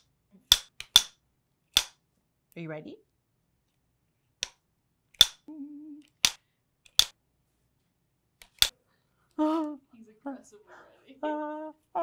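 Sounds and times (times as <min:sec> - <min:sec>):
clapstick snapping shut: 0:00.5 - 0:02.0, 0:05.2 - 0:07.2, 0:08.4 - 0:08.7
person humming a note: 0:05.5 - 0:06.1.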